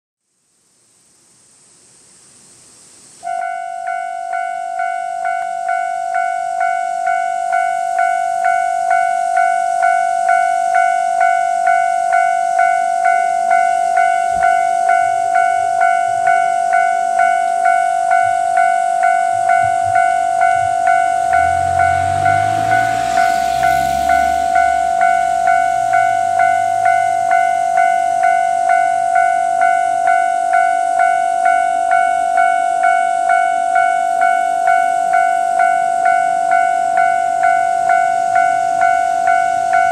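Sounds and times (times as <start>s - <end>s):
steady high hiss: 0.2s - 36.6s
level crossing warning bell: 3.2s - 39.9s
low rumble: 19.3s - 28.4s.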